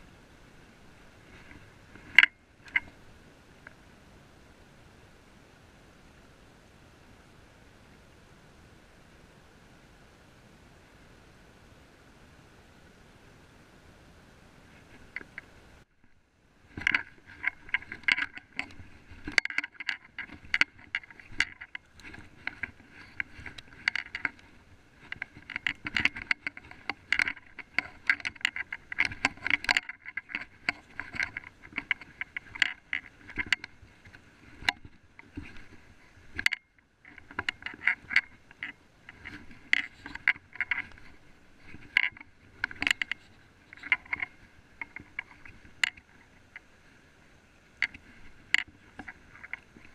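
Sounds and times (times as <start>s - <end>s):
plants rustling: 14.6s - 47.1s.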